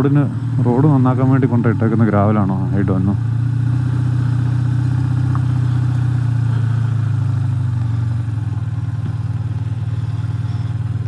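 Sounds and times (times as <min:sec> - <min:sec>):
motorcycle engine at low revs: 0:00.0 - 0:11.0.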